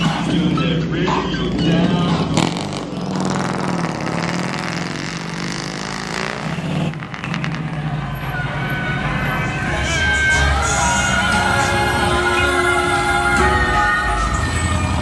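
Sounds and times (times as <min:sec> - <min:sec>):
car engine running: 0:00.0 - 0:09.9.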